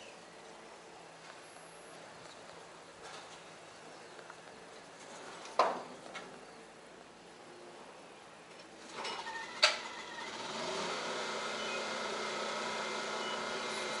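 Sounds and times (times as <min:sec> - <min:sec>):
mechanical motor hum: 0:09.2 - 0:14.0.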